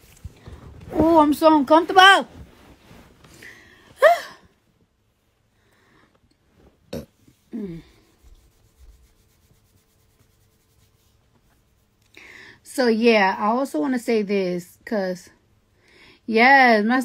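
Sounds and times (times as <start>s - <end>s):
clothing rubbing: 0.0s - 3.8s, 6.5s - 12.0s
faint rustles: 0.0s - 4.0s.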